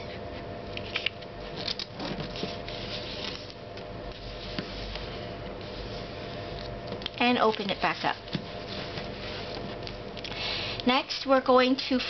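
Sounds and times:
paper rustling: 1.6s - 10.0s.

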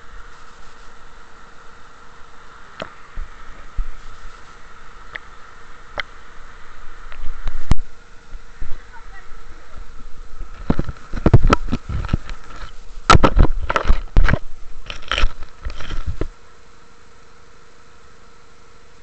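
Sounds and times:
steady background noise: 0.0s - 19.0s
camera handling noise: 10.6s - 16.3s.

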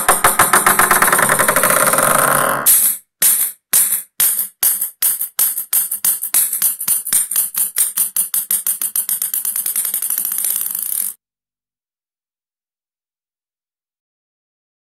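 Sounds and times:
ping-pong ball bouncing on table: 0.0s - 11.1s.

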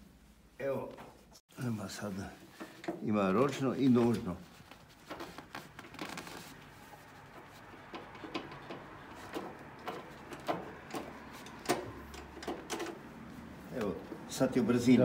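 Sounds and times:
motorcycle drivetrain clicks and knocks: 7.3s - 13.1s.

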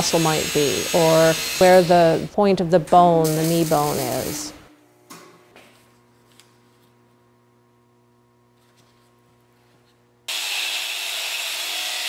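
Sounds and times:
angle grinder grinding steel: 0.0s - 2.3s, 10.3s - 12.0s
faint electrical hum: 0.0s - 10.3s.

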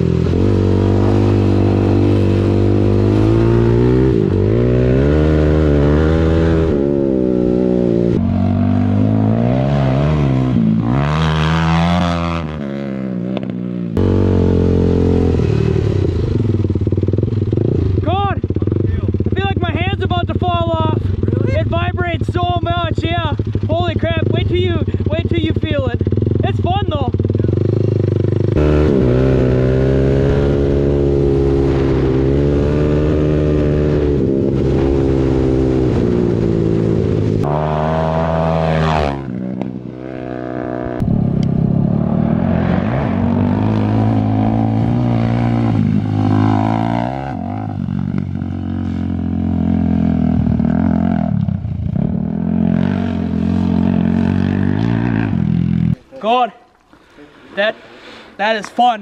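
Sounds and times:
quad engine revving: 0.0s - 19.9s, 23.2s - 56.0s.

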